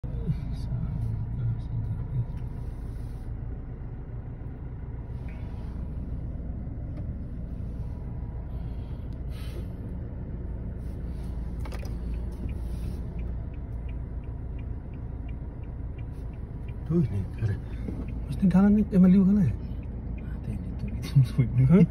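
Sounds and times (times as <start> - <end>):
car driving on dirt track: 0.0 - 21.9
light rapid ticking: 11.4 - 21.9.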